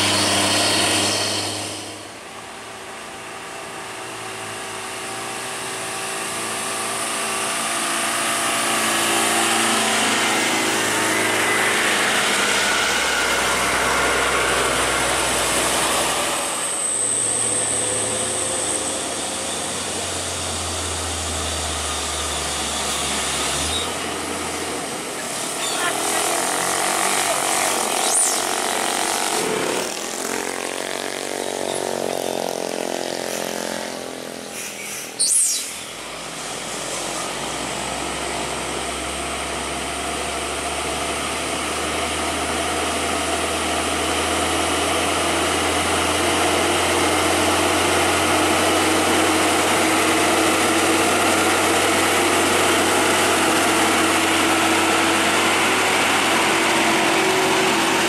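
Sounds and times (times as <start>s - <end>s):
truck diesel engine labouring: 0.0s - 58.0s
motorcycles passing: 24.6s - 34.6s.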